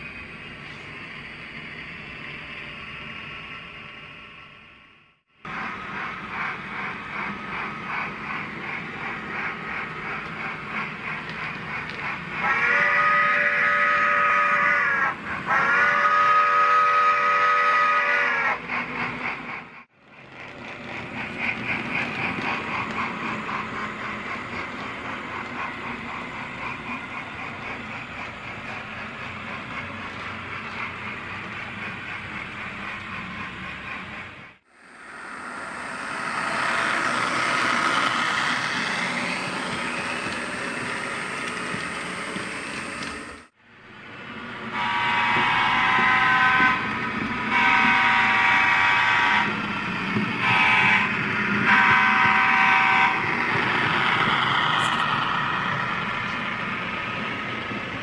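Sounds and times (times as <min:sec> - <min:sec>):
model locomotive running: 0:00.0 - 0:58.0
locomotive horn blasts: 0:12.6 - 0:14.8, 0:15.6 - 0:18.4, 0:44.7 - 0:46.9, 0:47.5 - 0:49.6, 0:50.4 - 0:53.3.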